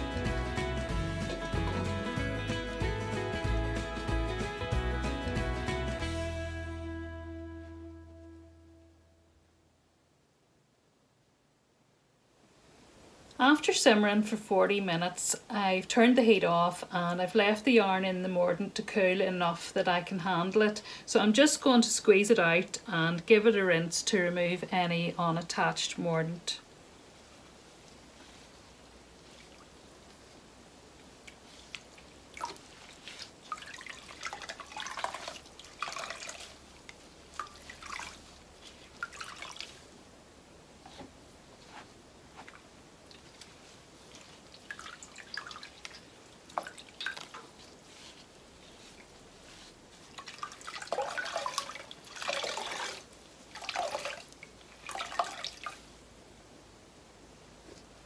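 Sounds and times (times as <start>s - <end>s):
wet yarn being squeezed: 31.2s - 39.8s, 42.4s - 55.9s.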